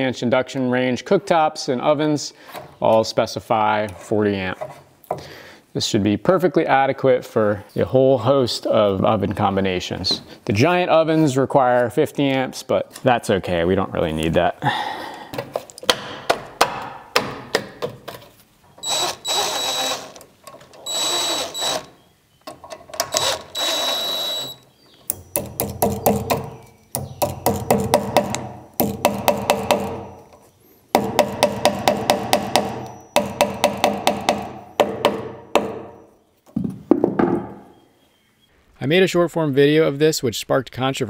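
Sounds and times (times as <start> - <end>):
cordless drill whining: 18.8 - 20.2, 20.8 - 22.0, 23.1 - 24.6.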